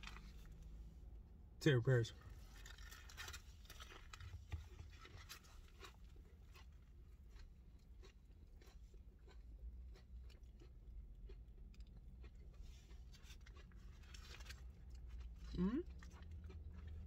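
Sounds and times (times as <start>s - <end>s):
person chewing crunchy food: 2.4s - 17.0s.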